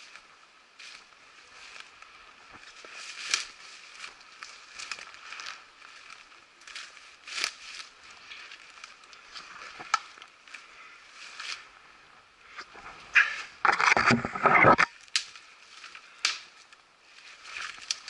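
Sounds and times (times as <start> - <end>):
twigs and leaves crackling underfoot: 0.0 - 18.0.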